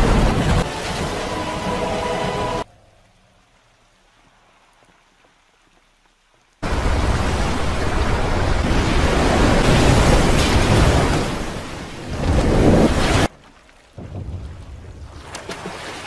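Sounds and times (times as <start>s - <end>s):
torrent of water crashing down: 6.6s - 13.3s.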